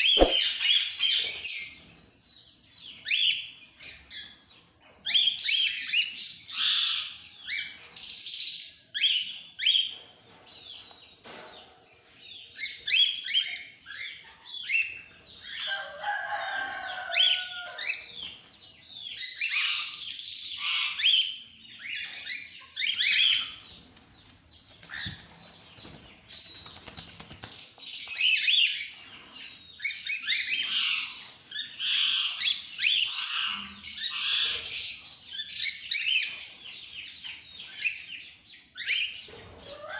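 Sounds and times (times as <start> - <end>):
low warbling bird call: 0.0 - 0.8.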